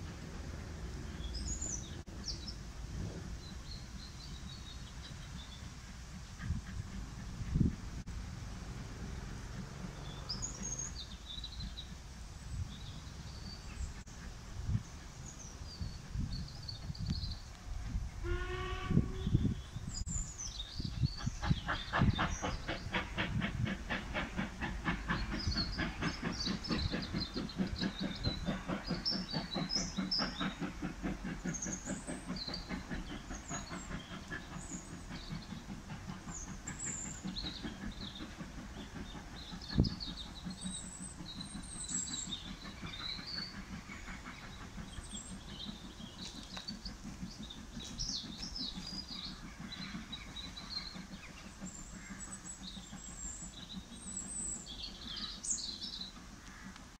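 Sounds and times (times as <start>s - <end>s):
steam locomotive exhaust beats: 0.0s - 57.0s
birds chirping: 19.2s - 56.7s.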